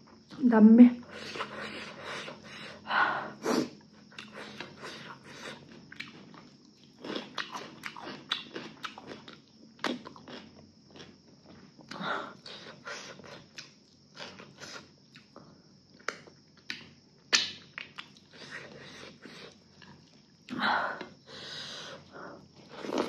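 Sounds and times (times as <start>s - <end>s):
chewing and biting food: 4.0s - 15.3s, 16.0s - 20.3s.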